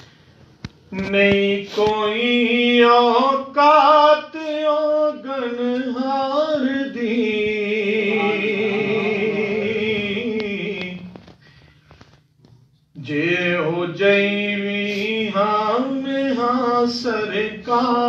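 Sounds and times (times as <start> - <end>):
man chanting solo: 7.9 - 9.9.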